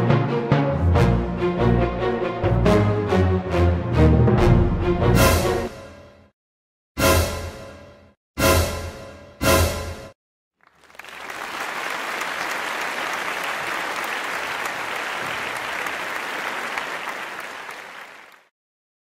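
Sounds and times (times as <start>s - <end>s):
crowd applause: 10.6s - 18.5s.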